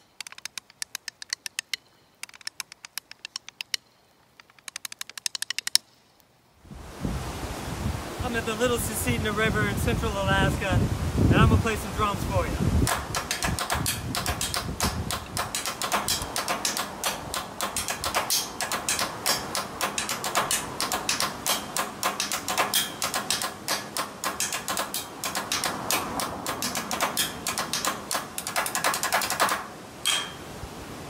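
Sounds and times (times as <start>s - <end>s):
drumsticks on metal railing: 0.1s - 3.8s, 12.8s - 30.5s.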